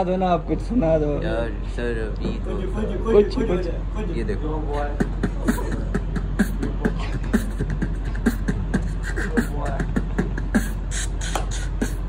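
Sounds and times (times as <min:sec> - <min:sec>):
man beatboxing: 0:04.7 - 0:12.0.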